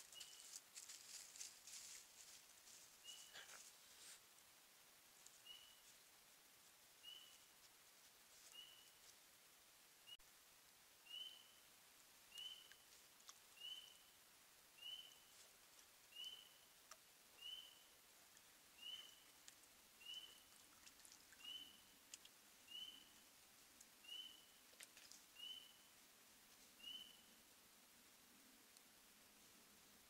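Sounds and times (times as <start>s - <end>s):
faint ticks: 5.2s - 5.4s, 12.3s - 13.6s, 16.8s - 17.1s, 18.2s - 21.4s, 22.0s - 22.4s, 23.6s - 24.0s, 28.6s - 29.0s.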